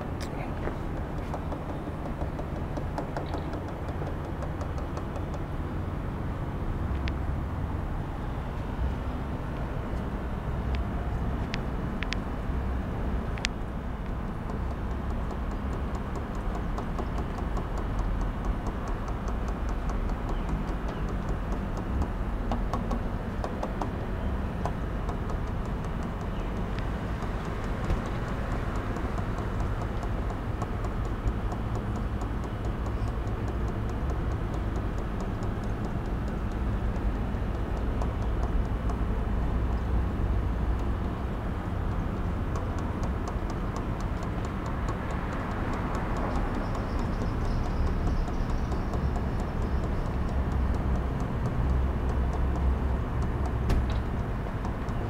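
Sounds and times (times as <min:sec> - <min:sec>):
faint clicks: 0:41.9 - 0:55.0.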